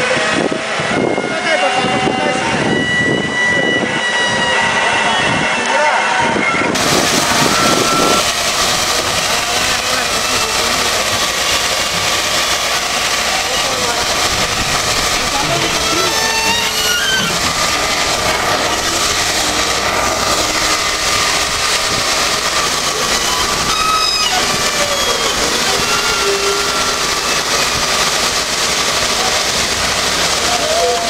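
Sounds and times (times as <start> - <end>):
excavator running: 6.6 - 31.0
high squeaks: 7.2 - 8.3, 15.2 - 28.3.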